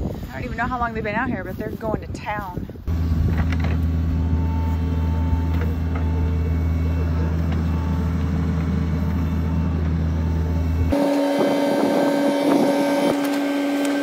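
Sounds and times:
excavator diesel engine running: 2.8s - 14.0s.

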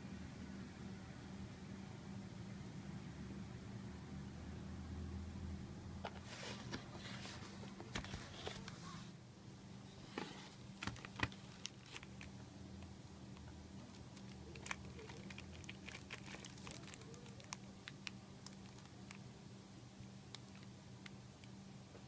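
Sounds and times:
plastic wrap crinkling: 10.7s - 12.3s, 13.8s - 19.2s.

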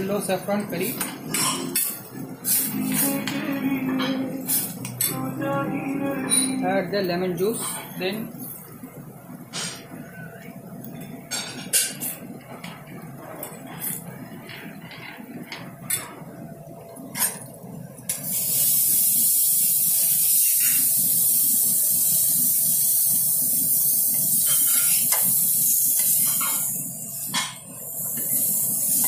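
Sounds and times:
metal utensils clinking on pan: 0.8s - 2.0s
prawns sizzling on griddle: 18.1s - 29.0s.

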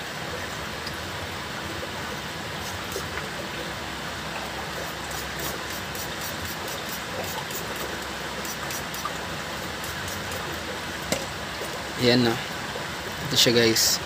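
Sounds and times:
background hiss: 1.4s - 14.0s
spray bottle squirts: 2.6s - 3.2s, 4.8s - 9.2s, 9.8s - 10.5s.

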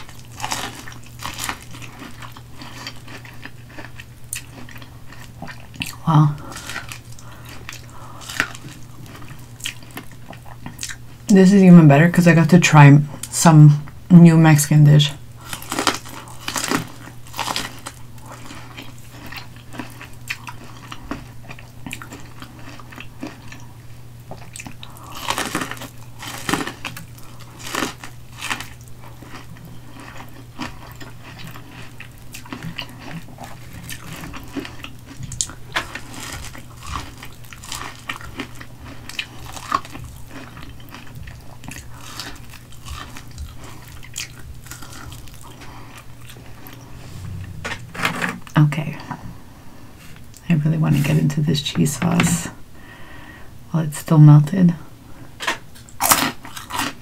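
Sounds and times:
crunchy biting and chewing: 0.0s - 11.2s, 15.4s - 47.6s, 55.4s - 57.0s.

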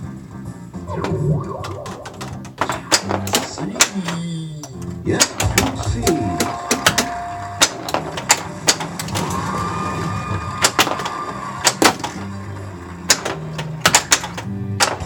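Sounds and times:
electronic sound effects: 0.8s - 2.4s
electronic game music: 0.8s - 3.0s
held electronic tone: 0.9s - 2.2s
pinball ball and flippers clacking: 0.9s - 9.5s, 10.6s - 15.0s.

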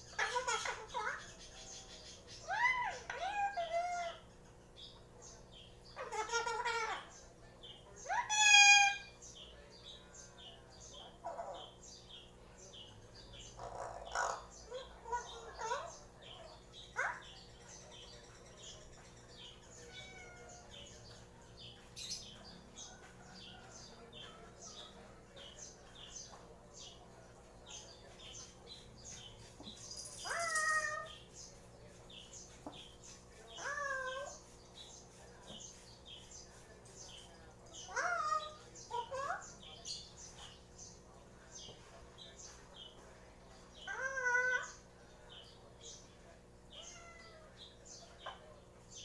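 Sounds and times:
parrot chirping: 0.0s - 4.2s, 5.9s - 7.2s, 8.0s - 9.1s, 13.5s - 19.1s, 28.4s - 31.3s, 32.5s - 34.8s, 37.2s - 40.5s, 43.8s - 44.9s.

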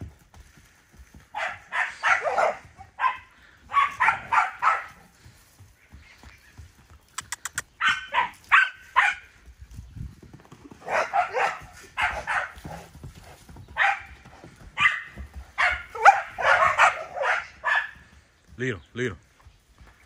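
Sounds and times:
dog barking: 1.3s - 5.0s, 7.8s - 9.3s, 10.8s - 12.6s, 13.8s - 14.1s, 14.8s - 18.0s
quick sharp clicks: 7.1s - 7.7s.

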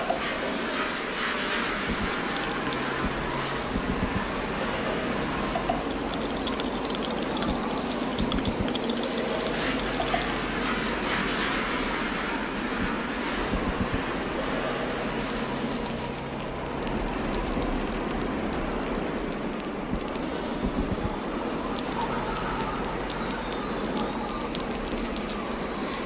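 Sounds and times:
high hiss: 20.9s - 23.1s.

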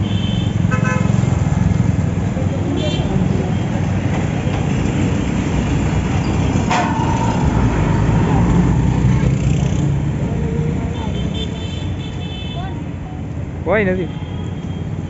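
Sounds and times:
bus passing: 0.0s - 12.0s
road traffic passing: 0.0s - 15.0s.

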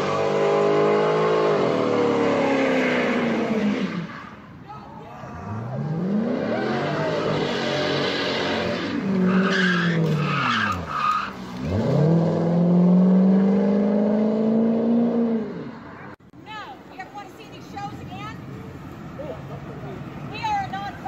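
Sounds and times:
car engine revving hard: 0.0s - 4.1s, 5.5s - 9.4s, 11.6s - 15.7s
tires squealing: 0.0s - 16.1s.

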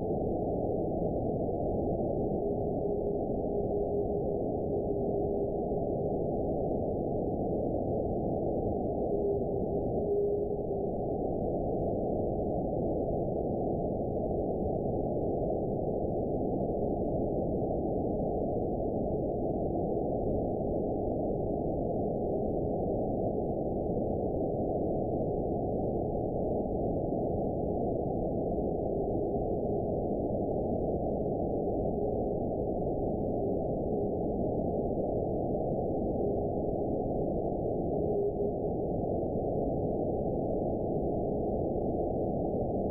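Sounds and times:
faint radio whistle: 8.9s - 11.0s, 37.8s - 38.9s.

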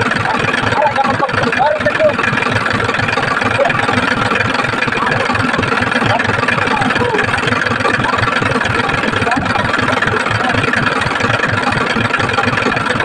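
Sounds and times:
engine idling with low chugging: 0.0s - 13.0s.

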